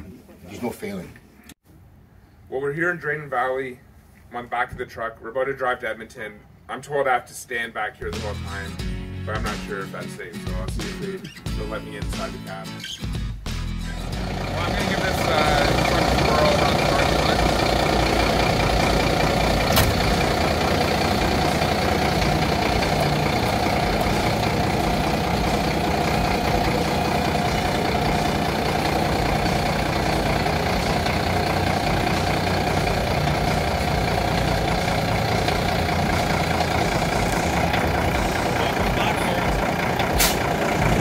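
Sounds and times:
diesel engine running at low revs: 0:13.9 - 0:41.0
sharp click: 0:40.2 - 0:40.4.

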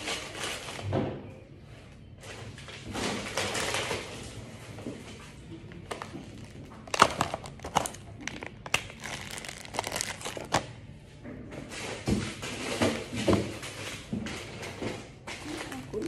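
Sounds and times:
plastic packets crinkling: 0:00.0 - 0:00.9, 0:05.7 - 0:10.7.

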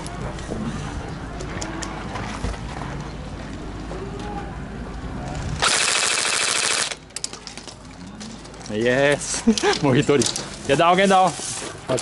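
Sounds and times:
airsoft rifle full-auto burst: 0:05.6 - 0:07.0.

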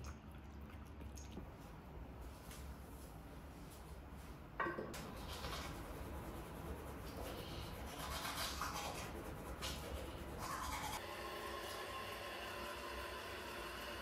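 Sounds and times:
scrubbing at a sink: 0:05.0 - 0:11.0.

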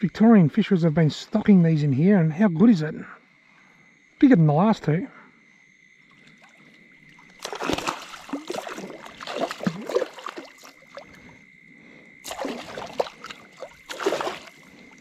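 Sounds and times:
fish splashing at water surface: 0:06.3 - 0:11.3, 0:12.2 - 0:15.0.

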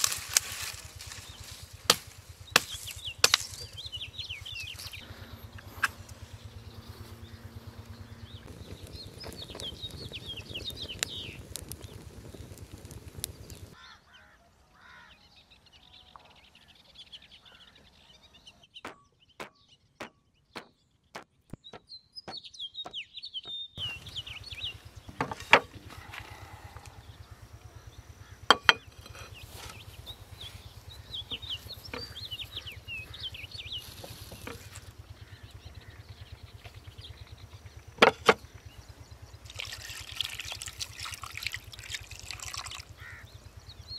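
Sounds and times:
steady low hum: 0:00.0 - 0:13.8, 0:23.8 - 0:43.9
twig fire crackling: 0:00.0 - 0:13.8, 0:23.8 - 0:43.9
birds chirping: 0:00.0 - 0:43.9.

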